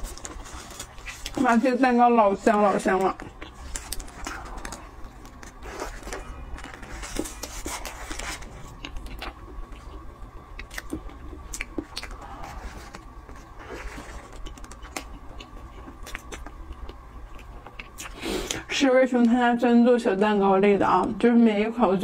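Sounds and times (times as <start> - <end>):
person chewing cake: 0.0 - 1.4, 2.9 - 18.7.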